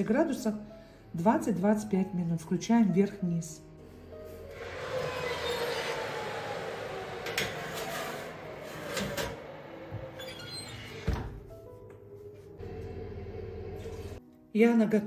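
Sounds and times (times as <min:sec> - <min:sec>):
metal rack scraping: 0:04.4 - 0:11.1
oven door shutting: 0:04.5 - 0:11.5.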